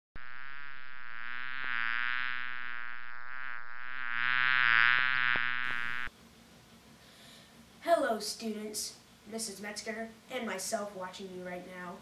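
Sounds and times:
bee buzzing: 0:00.2 - 0:06.1.

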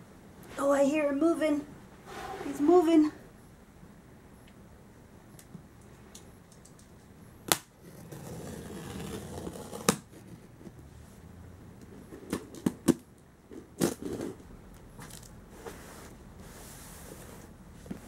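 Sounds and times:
knife cutting packing tape: 0:07.5 - 0:10.1.

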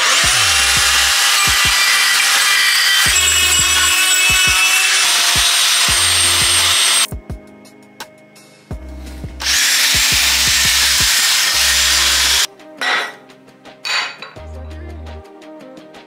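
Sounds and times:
sanding wheel on metal: 0:00.0 - 0:07.1, 0:09.4 - 0:12.5
background music: 0:00.0 - 0:16.0.

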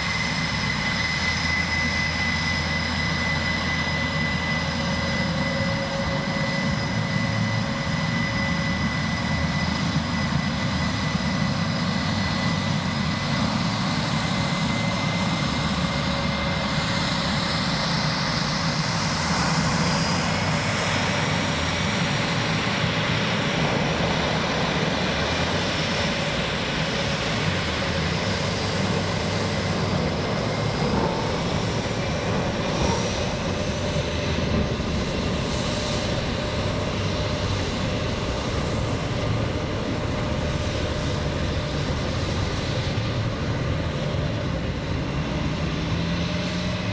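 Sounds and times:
jet engine whine: 0:00.0 - 0:46.9.

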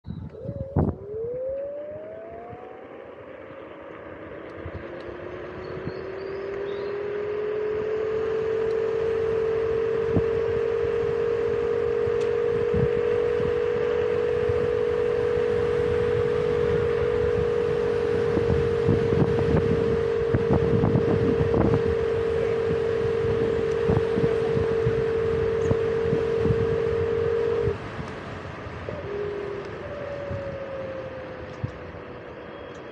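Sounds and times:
electric motor whining: 0:00.1 - 0:32.9
wind rushing: 0:04.6 - 0:32.2.

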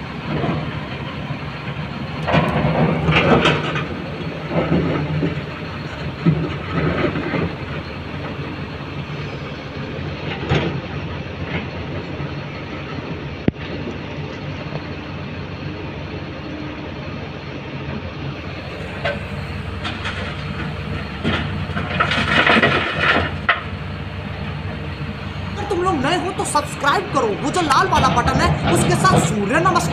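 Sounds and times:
truck cab rattling: 0:00.0 - 0:11.9, 0:18.6 - 0:29.9
diesel truck engine running: 0:00.0 - 0:29.9.

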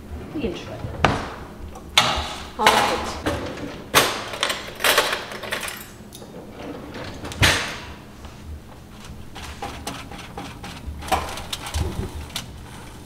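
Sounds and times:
utensils rattling: 0:02.0 - 0:07.9.

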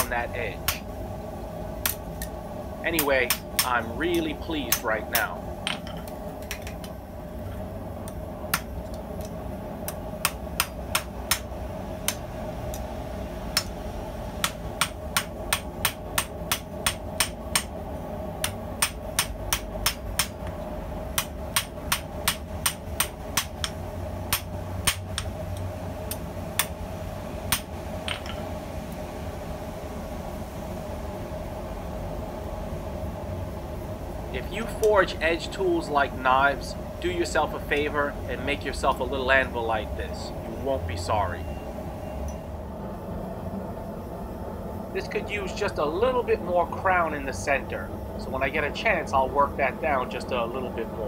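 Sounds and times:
hammer striking hot steel on anvil: 0:00.0 - 0:00.8, 0:01.8 - 0:02.3, 0:03.0 - 0:06.9, 0:08.0 - 0:12.9, 0:13.5 - 0:13.8, 0:14.4 - 0:17.8, 0:18.4 - 0:25.4, 0:26.1 - 0:26.8, 0:27.5 - 0:28.4
steady hum: 0:00.0 - 0:51.0.

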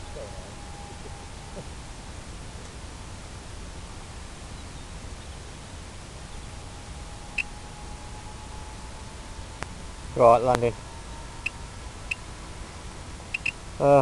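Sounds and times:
faint steady whine: 0:00.0 - 0:14.0
steady background hiss: 0:00.0 - 0:14.0
high chirp: 0:13.3 - 0:13.6.

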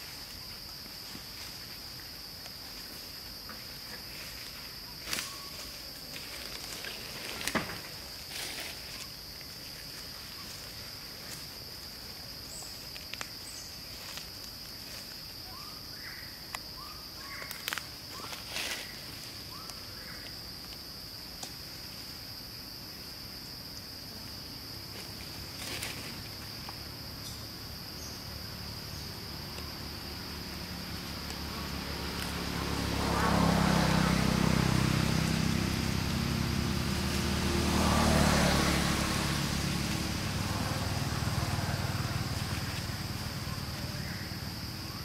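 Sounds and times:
high insect drone: 0:00.0 - 0:45.0
dry leaves crackling: 0:01.0 - 0:15.5, 0:17.2 - 0:20.4, 0:28.9 - 0:45.0.

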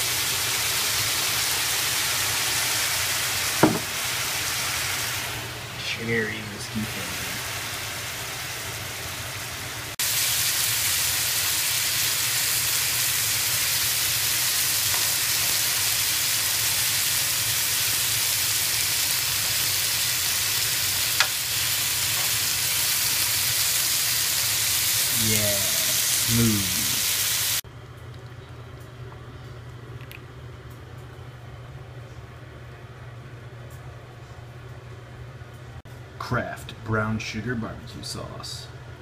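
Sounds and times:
meat sizzling in a skillet: 0:00.0 - 0:05.6, 0:06.8 - 0:27.6.

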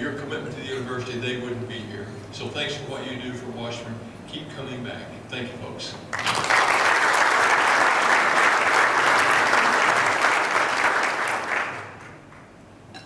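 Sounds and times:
audience applauding: 0:06.1 - 0:12.5.

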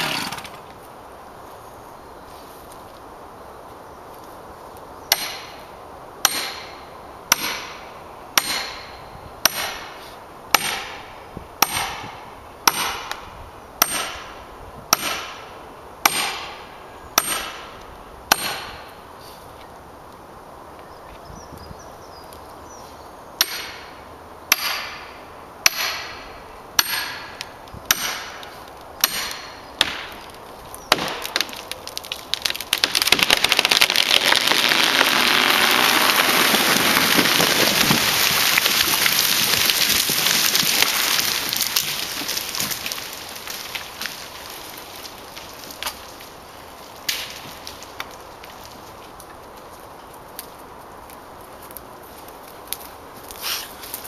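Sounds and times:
wood crackling and splintering: 0:00.0 - 0:00.9, 0:26.8 - 0:54.0
hammer striking metal wedge: 0:06.3 - 0:06.7, 0:07.3 - 0:07.7, 0:08.4 - 0:08.9, 0:24.5 - 0:25.0, 0:25.7 - 0:26.2, 0:26.8 - 0:27.3, 0:27.9 - 0:28.3, 0:29.0 - 0:30.0
tree crashing through branches: 0:29.8 - 0:49.2.

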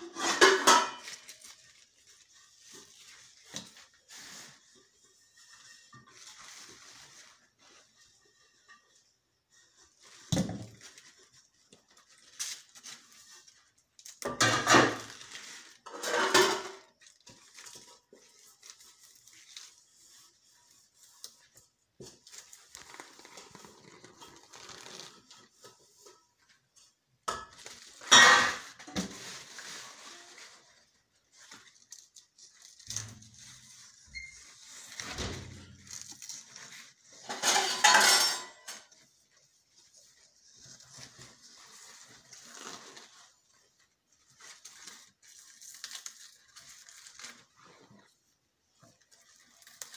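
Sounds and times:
leaves rustling: 0:29.0 - 0:37.2, 0:39.4 - 0:48.2.

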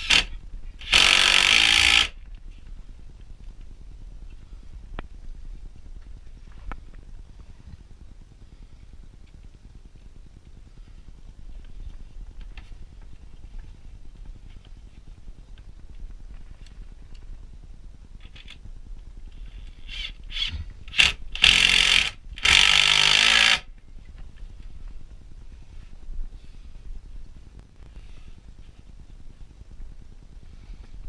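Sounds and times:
impact driver driving screw into wood: 0:00.0 - 0:02.2, 0:19.9 - 0:23.7.

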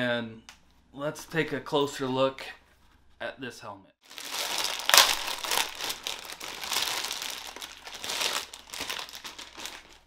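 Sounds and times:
plastic packaging crinkling: 0:04.0 - 0:10.0.

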